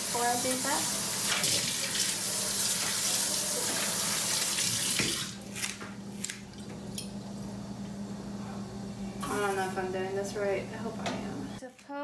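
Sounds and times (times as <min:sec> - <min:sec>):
faucet running into sink: 0:00.0 - 0:05.4.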